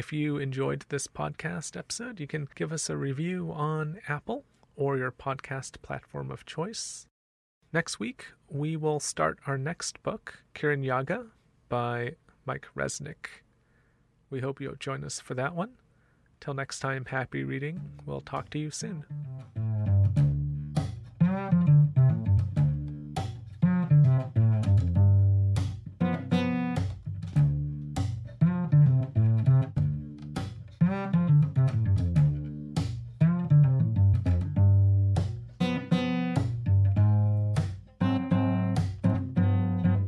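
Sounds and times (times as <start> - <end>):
plucked string notes: 17.8 - 40.0
low bass line: 19.0 - 40.0.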